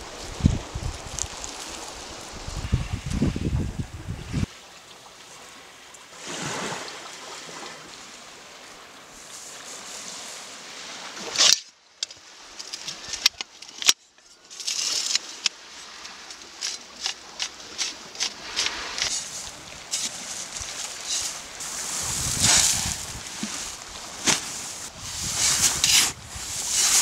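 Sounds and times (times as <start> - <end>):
small waves washing on beach: 0.0 - 11.6, 14.5 - 27.0
folding shovel clicks and scrapes: 11.3 - 21.5, 22.3 - 27.0.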